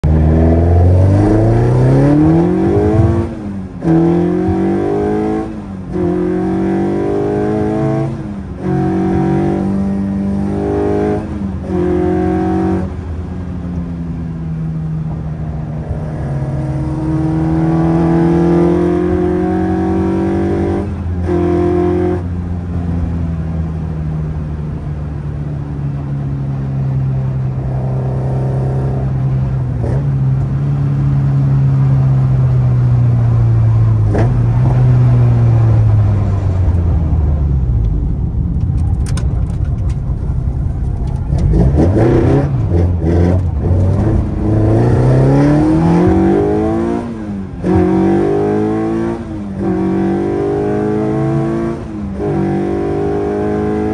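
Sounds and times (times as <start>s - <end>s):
car engine revving: 0.0s - 13.1s, 15.1s - 22.3s, 33.3s - 53.9s
gear changes: 35.9s - 48.4s.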